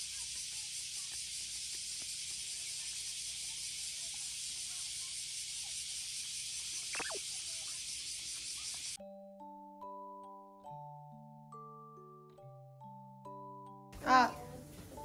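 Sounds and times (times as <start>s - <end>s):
cicadas buzzing: 0.0s - 9.0s.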